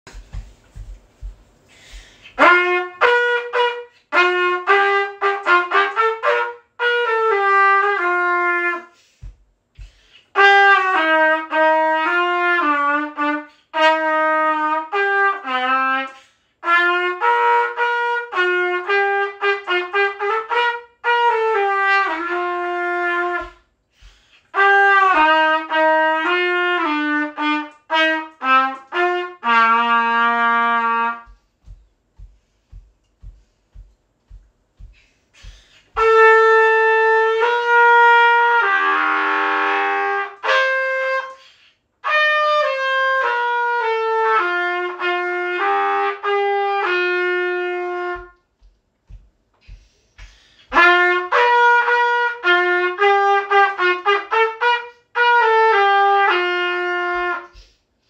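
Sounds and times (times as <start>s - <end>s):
trumpet melody: 2.2s - 9.3s, 10.2s - 33.8s, 35.3s - 48.6s, 50.6s - 57.6s.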